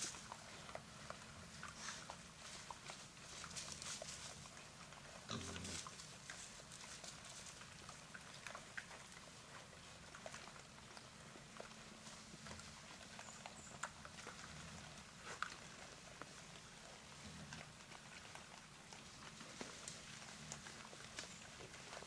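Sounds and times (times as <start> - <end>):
hogs rustling and crunching: 0.0 - 22.0
hog grunt: 5.2 - 6.0.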